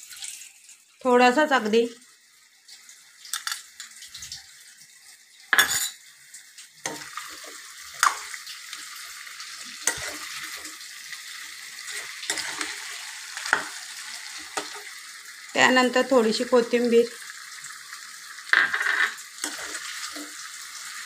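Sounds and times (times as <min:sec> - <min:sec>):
chicken sizzling in a pan: 0:00.0 - 0:21.0
spoon scraping a metal pan: 0:05.6 - 0:06.0, 0:09.8 - 0:10.7, 0:11.8 - 0:15.0, 0:18.5 - 0:20.4.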